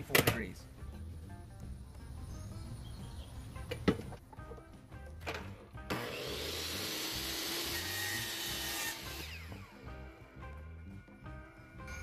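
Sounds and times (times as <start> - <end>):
miter saw cutting trim: 5.9 - 9.9
saw blade winding down whine: 5.9 - 9.9.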